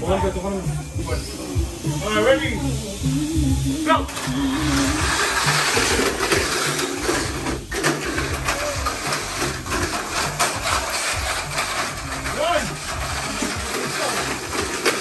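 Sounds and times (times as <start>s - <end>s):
small electric motors whirring: 0.4s - 15.0s
toy cars clicking and rattling: 4.1s - 15.0s.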